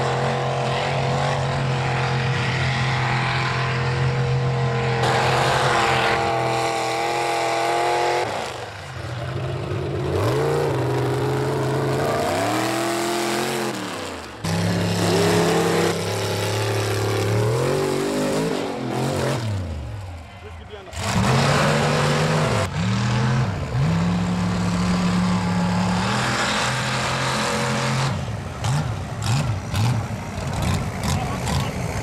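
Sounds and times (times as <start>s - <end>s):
truck engines revving hard: 0.0s - 32.0s.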